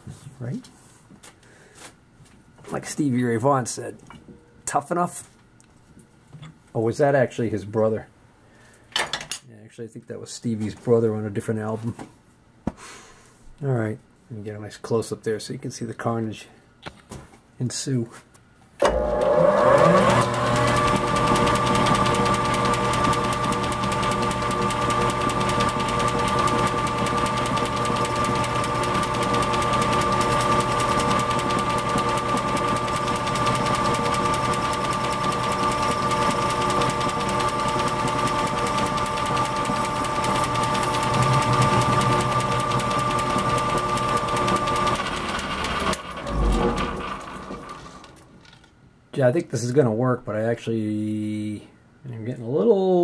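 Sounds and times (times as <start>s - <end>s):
metal lathe gear whine and hum: 18.8s - 47.8s.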